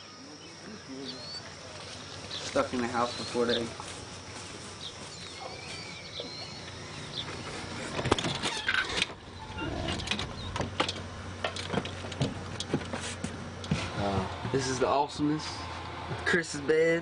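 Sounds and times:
high chirps: 4.3 - 7.8.

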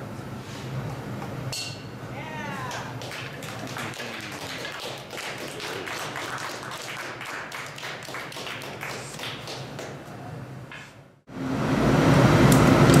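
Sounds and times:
people clapping: 2.6 - 10.1.

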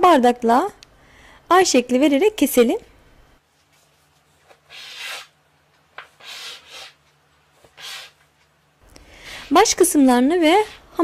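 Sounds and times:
metal cutter scraping dough: 9.3 - 11.0.

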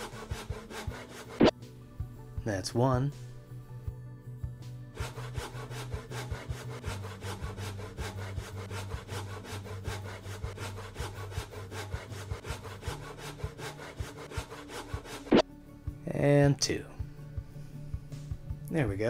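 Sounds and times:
hand saw cutting plastic: 0.0 - 1.6, 5.0 - 15.4.

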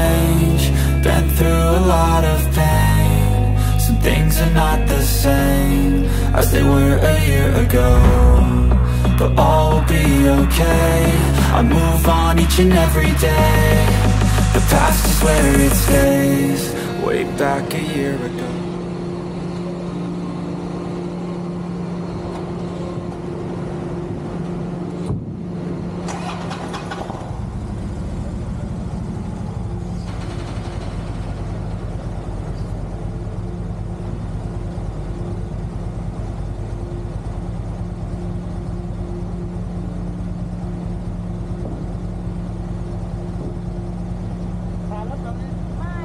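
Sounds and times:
engine droning: 0.0 - 46.0
deep rumble: 6.0 - 16.2.

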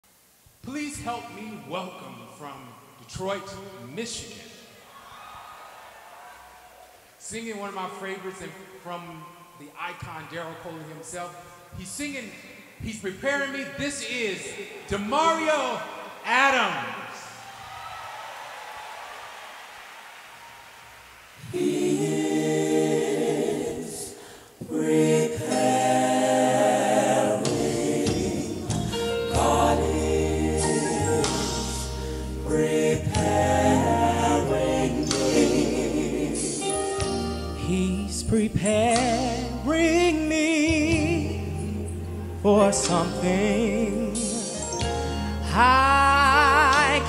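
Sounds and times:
gospel choir vocal harmony: 13.3 - 47.0
live band sustained chords: 24.6 - 47.0.

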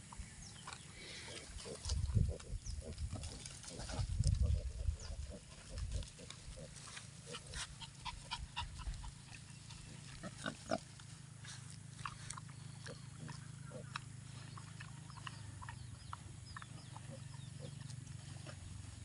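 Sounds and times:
pigs grunting and squealing: 1.0 - 10.9, 11.6 - 18.6
microphone rumble: 1.6 - 6.6.

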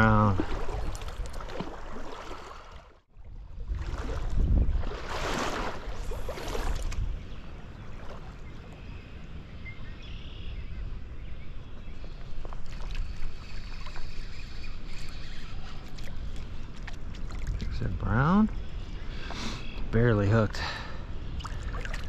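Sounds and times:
wind buffeting microphone: 3.3 - 14.5.

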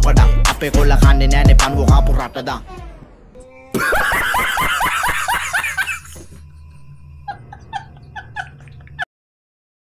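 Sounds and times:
high-pitched laugh: 3.7 - 6.4, 7.2 - 9.1.

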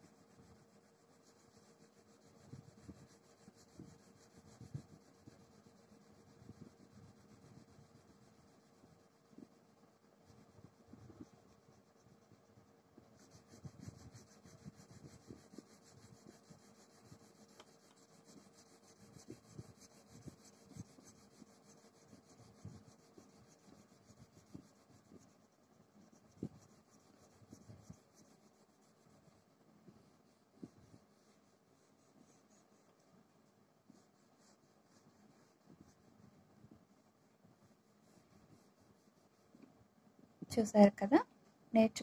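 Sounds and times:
crayon scratching on paper: 0.0 - 39.7.

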